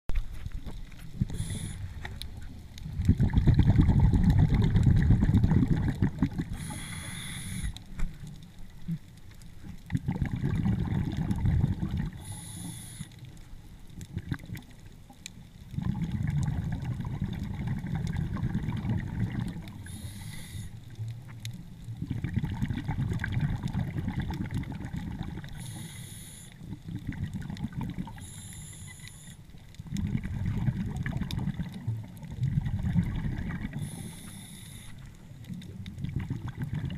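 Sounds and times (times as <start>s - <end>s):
exhaled bubbles rumbling underwater: 0.1s - 36.9s
regulator hiss: 1.3s - 2.0s, 6.5s - 7.9s, 12.2s - 13.2s, 19.8s - 20.9s, 25.6s - 26.6s, 28.2s - 29.4s, 33.8s - 35.3s.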